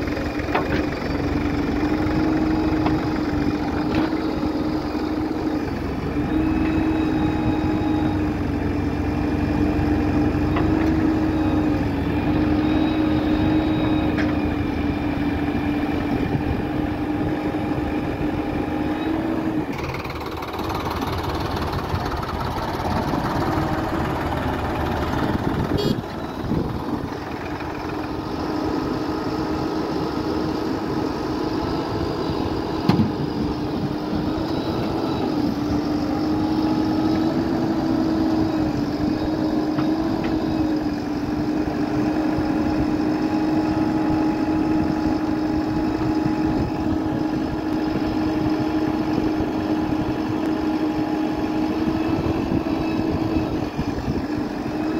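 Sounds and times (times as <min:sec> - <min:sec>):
backhoe digging soil: 0:00.0 - 0:54.9
diesel engines running: 0:00.0 - 0:54.9.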